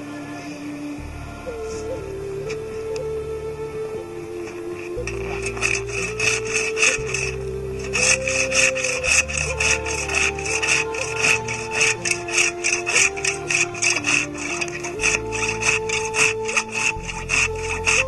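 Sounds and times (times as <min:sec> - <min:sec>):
background music: 0:00.0 - 0:18.0
pruning saw cutting branch: 0:04.4 - 0:18.0.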